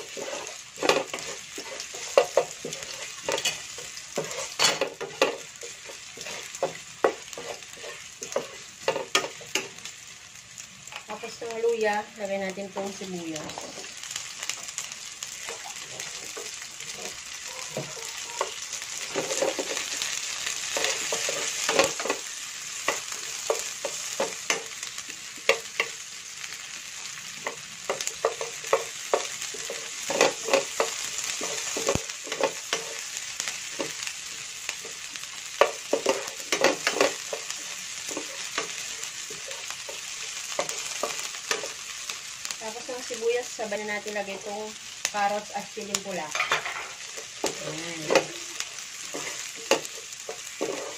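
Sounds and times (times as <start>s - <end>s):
wooden spatula scraping pan: 0.0s - 9.2s, 49.0s - 50.9s
onion sizzling in hot oil: 0.0s - 50.9s.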